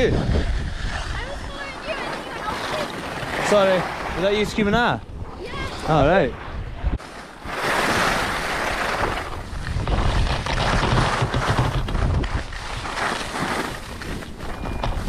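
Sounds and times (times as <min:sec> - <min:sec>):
wind buffeting microphone: 0:00.0 - 0:15.0
skis hissing over snow: 0:07.0 - 0:09.3, 0:12.6 - 0:14.3.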